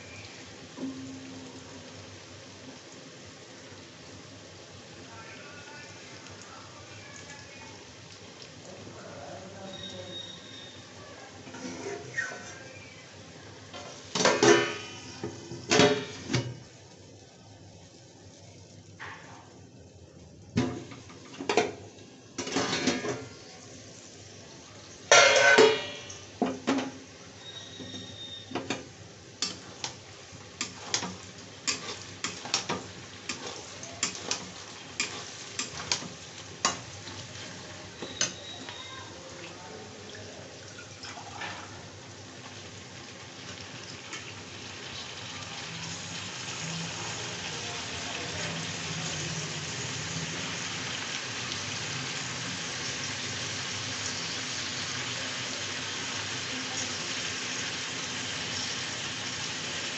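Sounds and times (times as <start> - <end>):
sizzling in hot oil: 0.0 - 59.9
metal spatula scraping a pan: 11.5 - 12.6, 30.6 - 38.5
steel lid clattering: 25.1 - 26.1.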